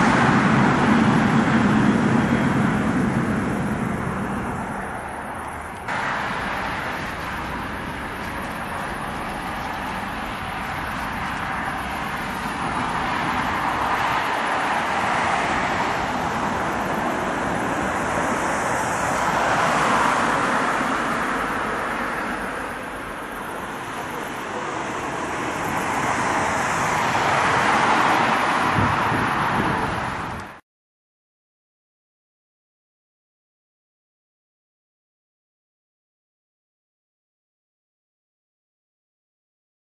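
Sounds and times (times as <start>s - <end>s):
cars passing: 0.0s - 30.6s.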